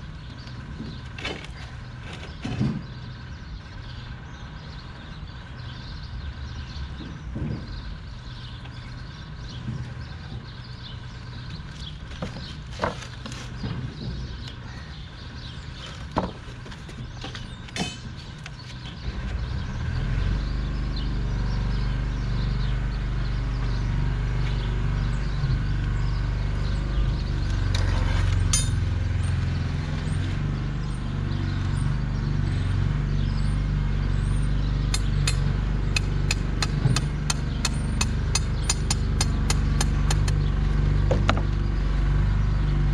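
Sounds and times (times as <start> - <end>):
sharp metallic clinks: 17.8 - 18.2, 28.4 - 29.0.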